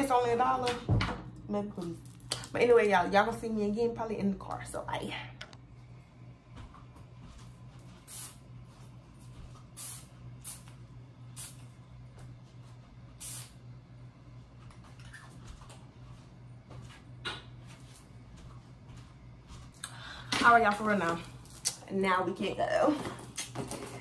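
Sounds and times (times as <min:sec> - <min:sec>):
steady low hum: 0:00.0 - 0:24.0
spray bottle spritzes: 0:08.1 - 0:08.4, 0:09.8 - 0:10.7, 0:11.4 - 0:11.6, 0:13.2 - 0:13.6.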